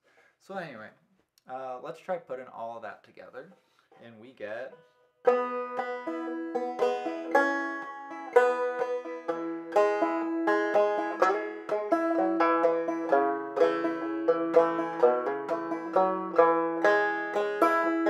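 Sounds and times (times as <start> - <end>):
banjo playing: 4.7 - 18.0.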